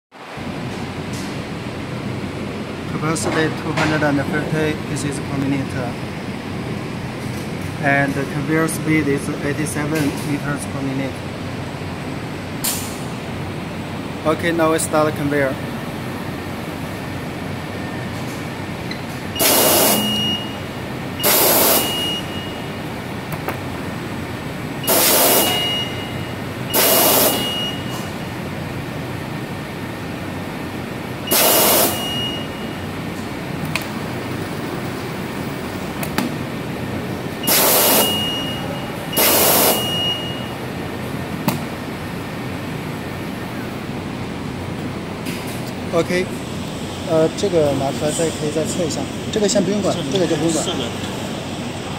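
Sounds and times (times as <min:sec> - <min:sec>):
conveyor belts humming: 0:00.2 - 0:51.9
hissing air blasts: 0:19.4 - 0:20.5, 0:21.2 - 0:22.3, 0:24.8 - 0:26.0, 0:26.7 - 0:27.8, 0:31.3 - 0:32.6, 0:37.4 - 0:38.4, 0:39.1 - 0:40.5.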